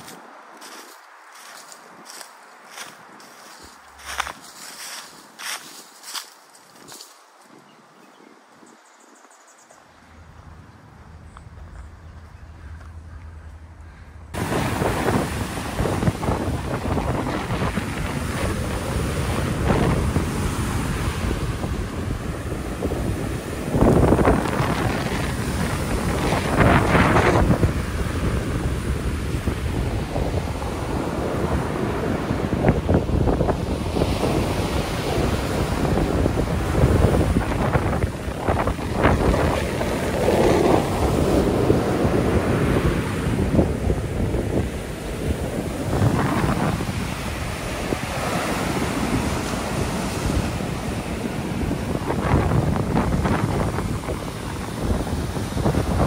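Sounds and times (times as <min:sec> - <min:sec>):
wind noise on microphone: 0:00.0 - 0:09.3, 0:10.1 - 0:56.0
surf washing up a beach: 0:14.4 - 0:56.0.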